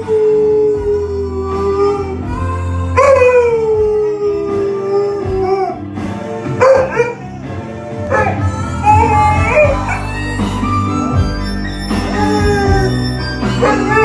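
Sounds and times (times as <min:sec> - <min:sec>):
dog howling: 0:00.0 - 0:05.9, 0:06.6 - 0:07.3, 0:08.1 - 0:10.3, 0:12.0 - 0:14.0
music: 0:00.0 - 0:14.0.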